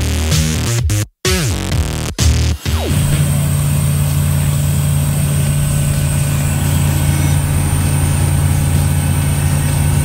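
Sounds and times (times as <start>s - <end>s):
aircraft engine and propeller drone: 2.9s - 10.0s.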